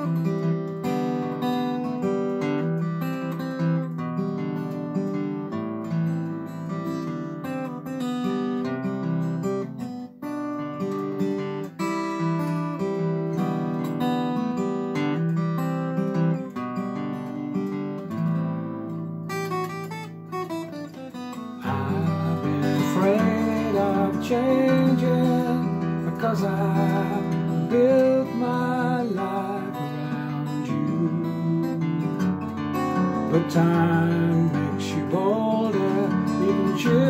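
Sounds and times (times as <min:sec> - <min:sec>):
fingerpicked acoustic guitar: 0:00.0 - 0:37.0
man singing: 0:21.6 - 0:37.0.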